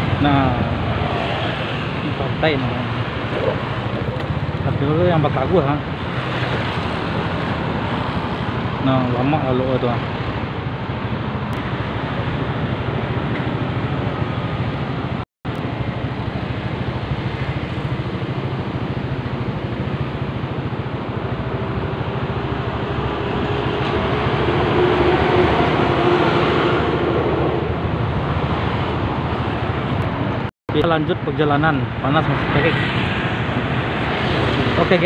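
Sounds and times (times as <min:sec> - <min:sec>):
road and wind noise: 0:00.0 - 0:35.0.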